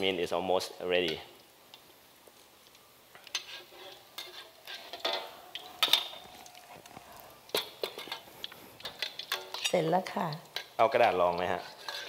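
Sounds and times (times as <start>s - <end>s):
metal utensil scraping a wok: 3.1s - 6.3s, 7.4s - 12.0s.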